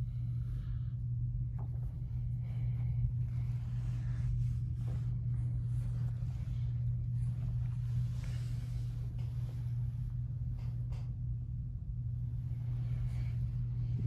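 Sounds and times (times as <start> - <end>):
faint rustles: 0.0 - 11.2
steady low hum: 0.0 - 14.0.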